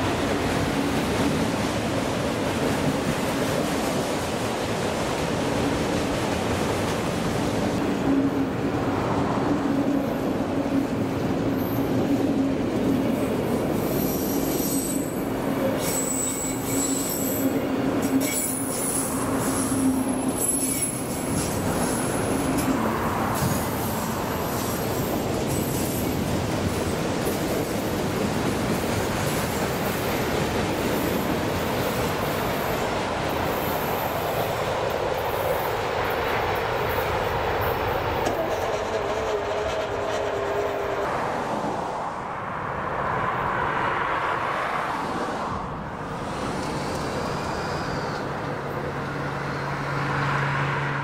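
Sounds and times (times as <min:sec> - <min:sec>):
train wheel squeal: 0:13.7 - 0:22.8, 0:23.4 - 0:26.3, 0:36.9 - 0:41.1, 0:46.6 - 0:49.2
freight train clattering over rail joints: 0:14.8 - 0:41.0.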